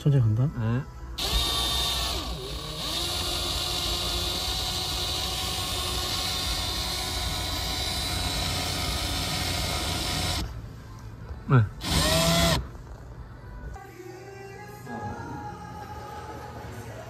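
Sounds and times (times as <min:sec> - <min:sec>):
cordless drill running: 0:01.2 - 0:10.5, 0:11.8 - 0:12.6.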